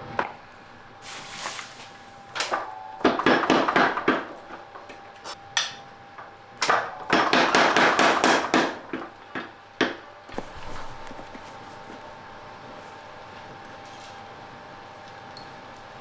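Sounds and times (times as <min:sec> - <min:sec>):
power hammer striking metal: 0:02.4 - 0:04.9, 0:05.5 - 0:10.0.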